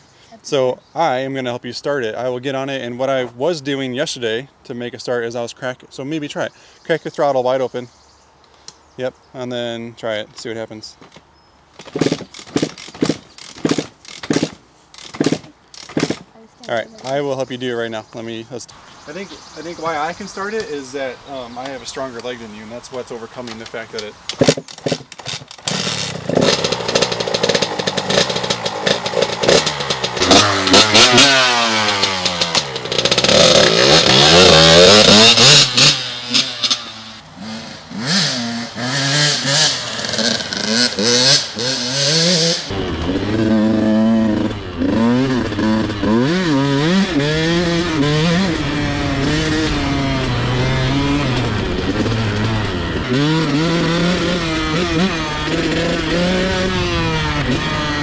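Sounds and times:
dirt bike kick starter clattering: 0:11.1 - 0:16.3, 0:23.4 - 0:37.0
dirt bike engine revving: 0:11.8 - 0:16.3, 0:24.4 - 0:58.0.

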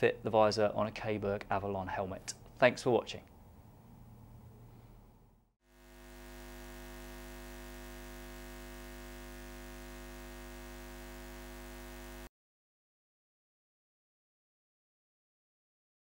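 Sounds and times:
electric hum with hiss: 0:05.7 - 0:12.3.

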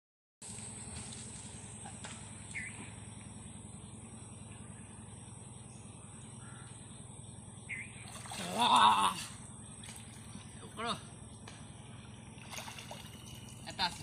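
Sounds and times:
steady low hum: 0:00.4 - 0:14.0
bird chirps: 0:02.4 - 0:08.2.

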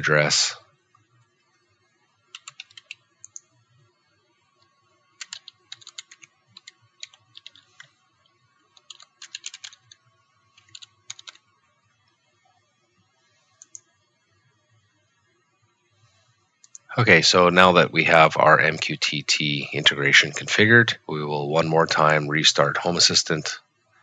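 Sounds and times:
computer keyboard typing: 0:02.3 - 0:03.5, 0:05.2 - 0:08.0, 0:08.7 - 0:10.0, 0:10.6 - 0:11.4, 0:13.6 - 0:13.9.

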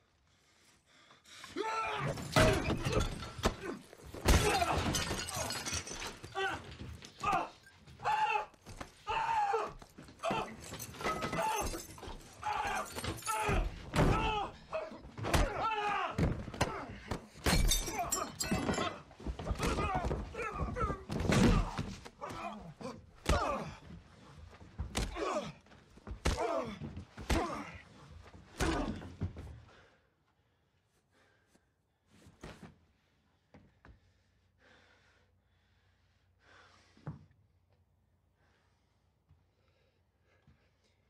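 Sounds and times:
men grunting and yelling: 0:01.5 - 0:24.0, 0:25.0 - 0:27.9
punches thudding: 0:02.2 - 0:05.4, 0:19.4 - 0:22.6, 0:26.1 - 0:27.8.

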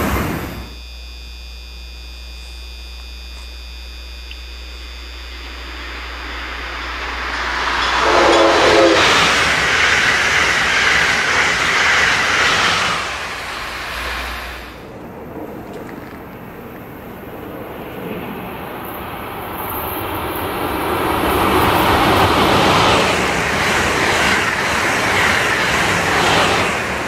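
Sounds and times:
train passing at speed: 0:00.0 - 0:00.7, 0:05.3 - 0:27.0
train horn blast: 0:05.4 - 0:10.1.

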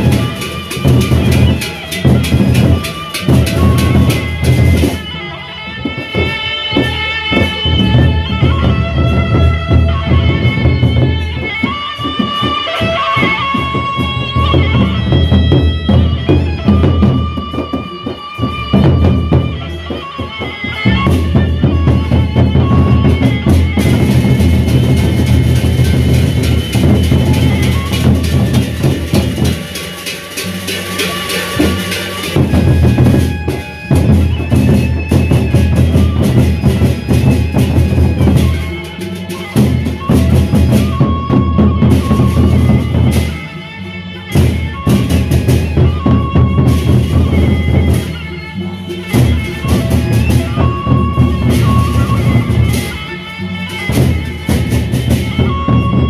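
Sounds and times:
barrel drums beaten with sticks: 0:00.0 - 0:05.0, 0:20.8 - 0:43.4
high melody tones: 0:00.0 - 0:56.0
metal percussion: 0:00.0 - 0:56.0.

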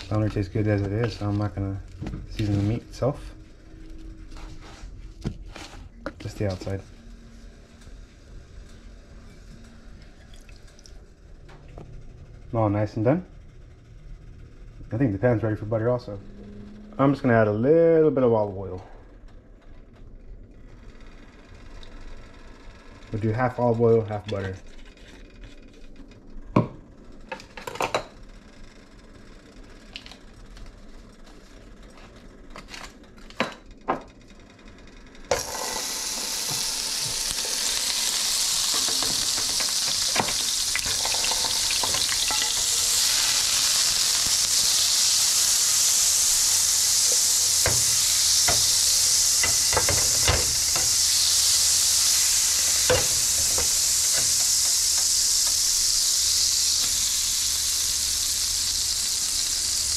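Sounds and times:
butter sizzling in frying pan: 0:35.3 - 0:59.9.

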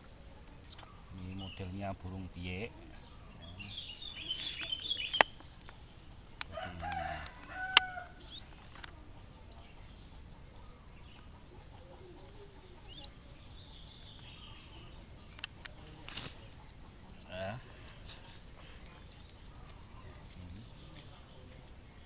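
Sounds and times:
birds cheeping and calling: 0:00.0 - 0:22.0.

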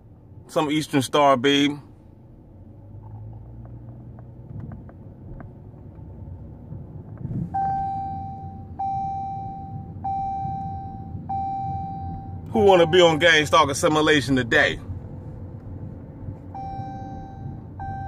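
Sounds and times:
low background rumble: 0:00.0 - 0:18.0
long electronic beeps: 0:07.6 - 0:13.4, 0:16.6 - 0:18.0.

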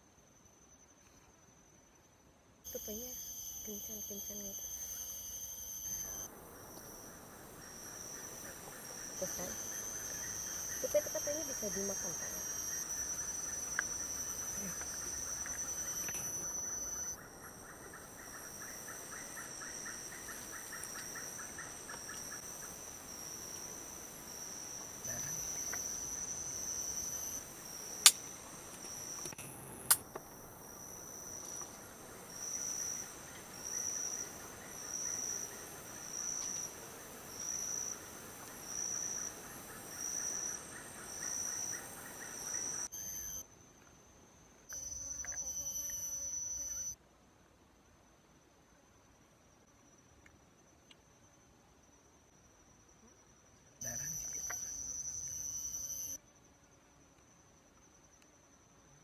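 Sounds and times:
insects shrilling: 0:02.7 - 0:17.2, 0:37.3 - 0:43.4, 0:44.7 - 0:47.0, 0:53.8 - 0:56.2.

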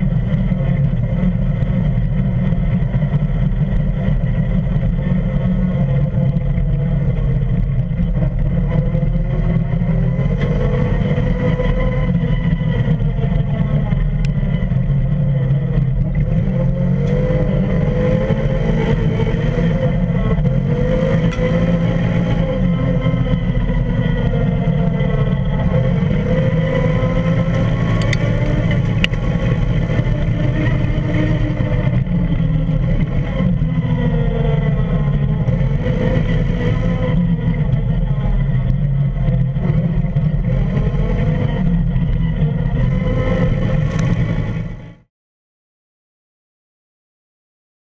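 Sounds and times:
engine running under load: 0:00.0 - 0:45.1
road and wind rumble: 0:00.0 - 0:45.1.

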